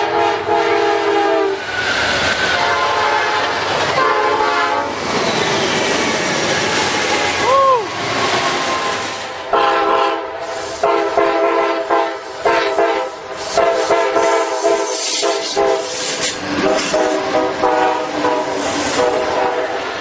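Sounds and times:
locomotive air horn blasts: 0.0 - 1.6, 2.5 - 5.0, 9.5 - 16.0, 16.6 - 19.8
moving train running noise: 0.0 - 20.0.

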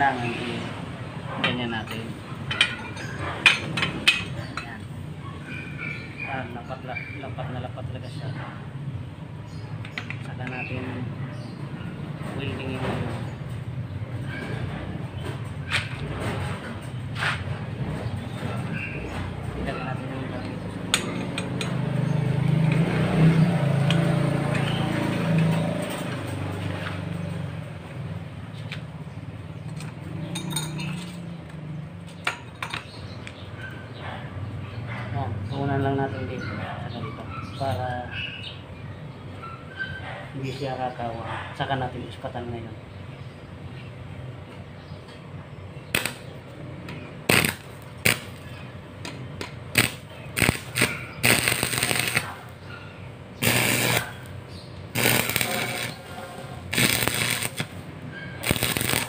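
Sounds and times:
crackling pops: 45.9 - 46.2, 47.3 - 48.4, 49.4 - 52.4, 55.0 - 56.0, 56.7 - 57.8, 58.4 - 59.0
welding arc crackling: 45.9 - 46.3, 47.2 - 48.5, 49.4 - 52.6, 53.4 - 59.0.

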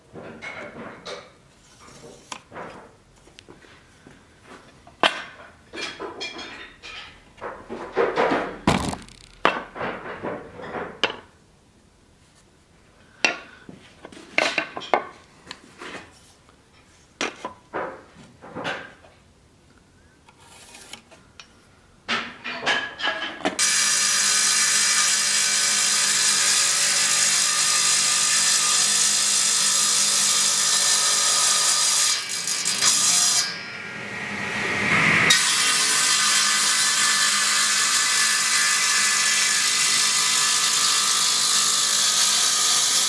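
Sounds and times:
table saw running: 23.6 - 43.0.

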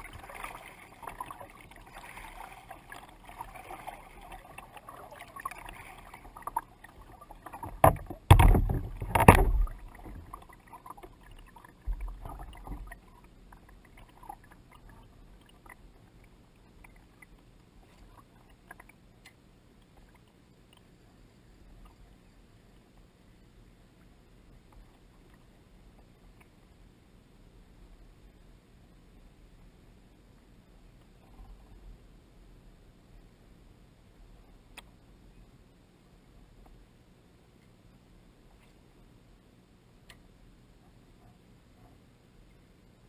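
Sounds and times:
water lapping against kayak: 0.0 - 23.1
dull thump: 7.6 - 10.2
loud knocks on hull: 7.7 - 9.8.

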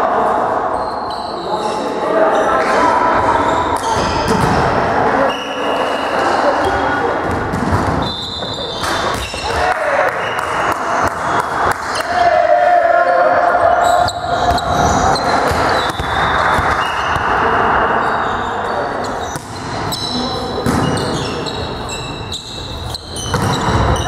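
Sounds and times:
players calling out: 0.0 - 24.0
sneakers squeaking on floor: 0.7 - 4.6, 5.2 - 9.6, 13.8 - 24.0.

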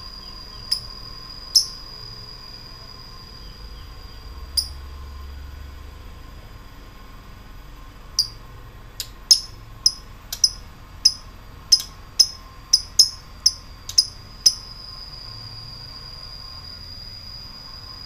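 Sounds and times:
lovebird chipping and trilling: 0.0 - 1.9, 4.6 - 4.8, 8.2 - 8.4, 9.0 - 14.8.

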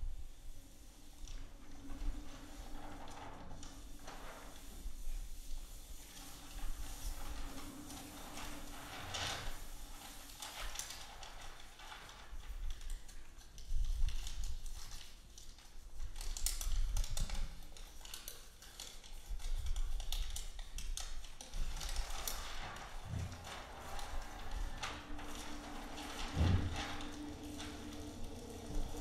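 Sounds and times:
paper rustling and clicking: 5.4 - 29.0
low rumble: 22.5 - 29.0.

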